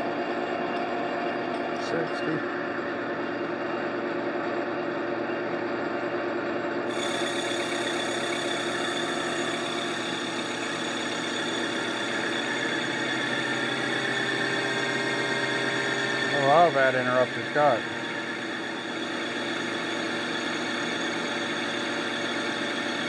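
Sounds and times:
lathe gearing whine: 0:00.0 - 0:23.0
cutting tool cutting metal: 0:06.9 - 0:23.0.

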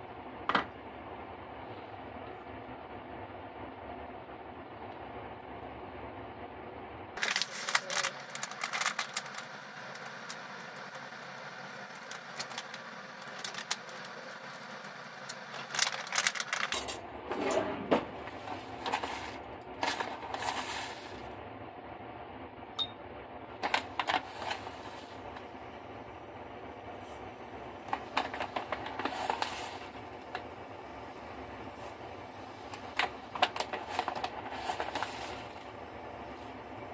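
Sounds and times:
steady low hum: 0:00.0 - 0:36.9
plastic pouch crinkling: 0:07.2 - 0:16.7.

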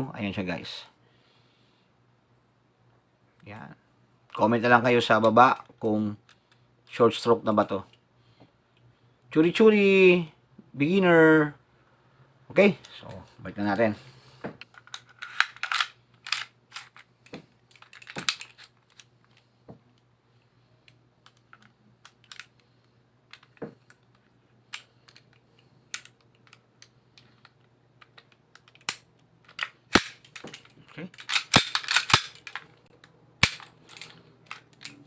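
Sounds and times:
metal parts clicking and clinking: 0:14.6 - 0:17.1, 0:17.7 - 0:19.4, 0:21.2 - 0:22.7, 0:23.3 - 0:35.0.

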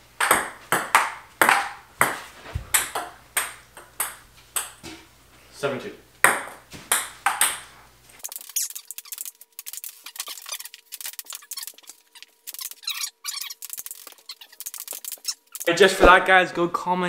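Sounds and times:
ping pong ball hitting paddles and table: 0:00.2 - 0:05.0, 0:06.2 - 0:07.8
squeaky chirps: 0:08.2 - 0:15.7.

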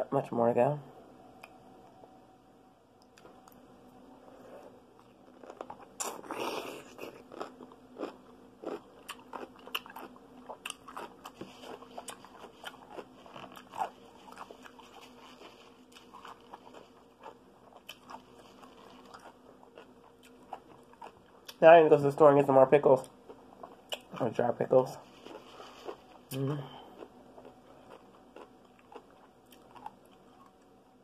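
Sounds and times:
chewing: 0:05.0 - 0:21.6, 0:25.0 - 0:30.7
pickle crunching: 0:05.0 - 0:21.6, 0:23.0 - 0:26.4, 0:27.0 - 0:30.7.

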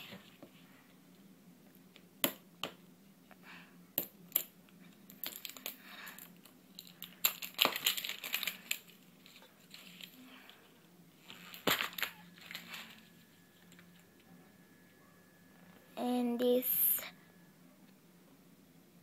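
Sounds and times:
plastic crinkling: 0:11.2 - 0:13.8.

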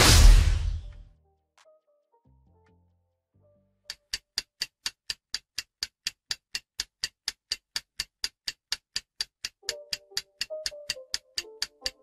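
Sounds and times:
background music: 0:00.0 - 0:04.2, 0:09.6 - 0:12.0
clock ticking: 0:03.9 - 0:12.0.

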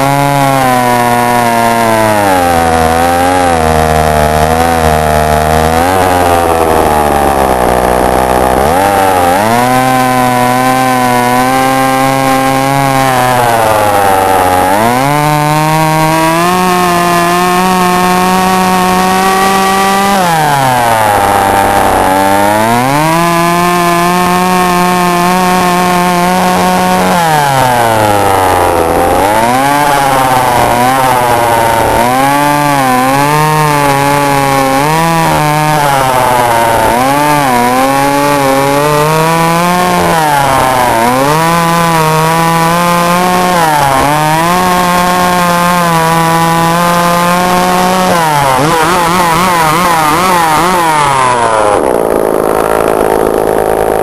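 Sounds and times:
chainsaw revving: 0:00.0 - 0:54.0.

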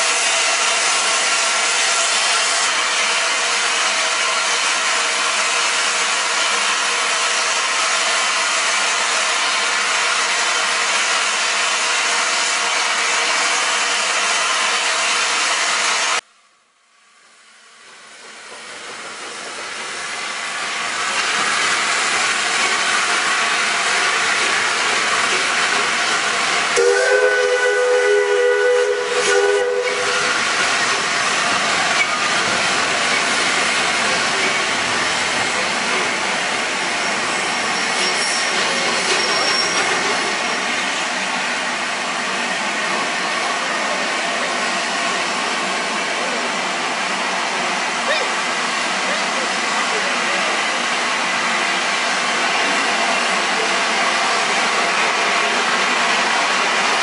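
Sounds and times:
steam hissing: 0:18.0 - 0:57.0
steam locomotive whistle: 0:26.8 - 0:30.6.

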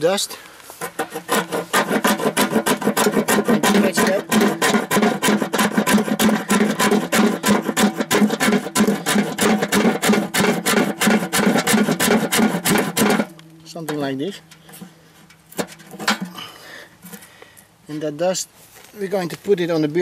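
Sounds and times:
knife scraping wood stick: 0:00.7 - 0:16.5.

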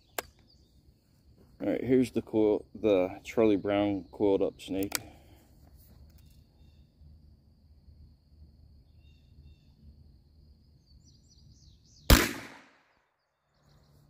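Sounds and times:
gunshot: 0:12.1 - 0:12.9.

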